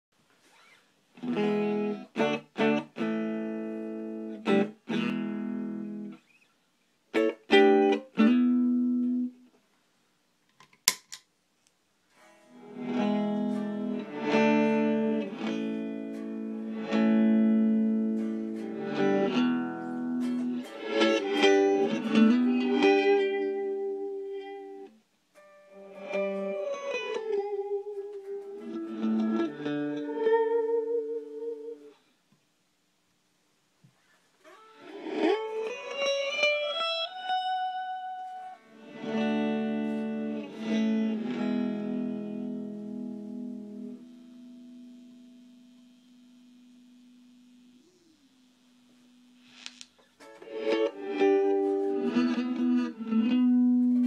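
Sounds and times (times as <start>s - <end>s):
electric guitar strummed chords: 1.2s - 6.2s, 7.1s - 9.4s, 12.3s - 31.9s, 34.5s - 54.0s
sharp click: 10.5s - 11.3s.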